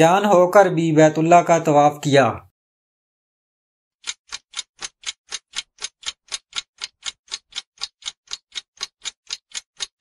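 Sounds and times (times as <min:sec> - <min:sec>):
clock ticking: 0:04.0 - 0:10.0.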